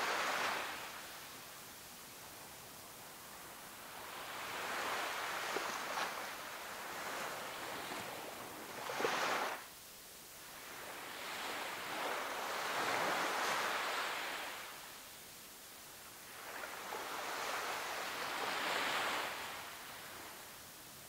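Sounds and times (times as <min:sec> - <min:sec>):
small waves washing onto sand: 0:00.0 - 0:09.6, 0:10.4 - 0:15.0, 0:16.1 - 0:20.7.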